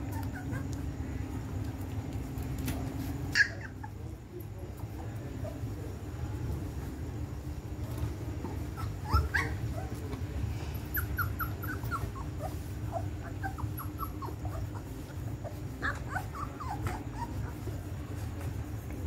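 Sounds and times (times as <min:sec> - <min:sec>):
puppies squeaking and whimpering: 0:00.0 - 0:01.1, 0:03.2 - 0:04.2, 0:08.6 - 0:10.2, 0:10.8 - 0:17.9.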